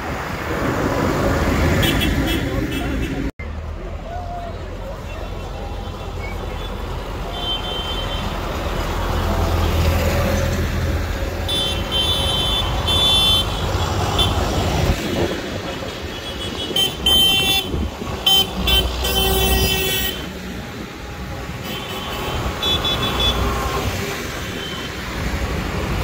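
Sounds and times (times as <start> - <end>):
tractor engines rumbling: 0.0 - 26.0
vehicle horn tooting: 6.6 - 8.4, 11.5 - 13.6, 16.2 - 20.3.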